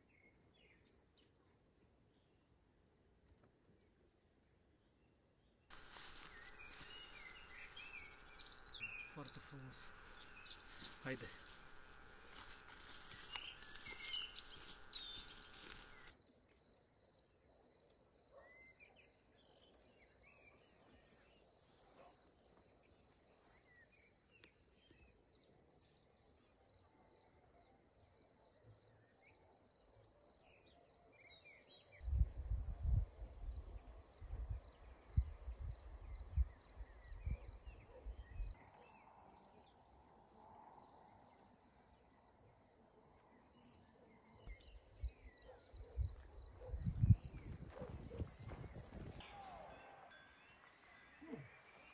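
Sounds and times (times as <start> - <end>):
crickets trilling: 5.7 - 16.1, 44.5 - 49.2
faint insect chirps: 5.7 - 49.2.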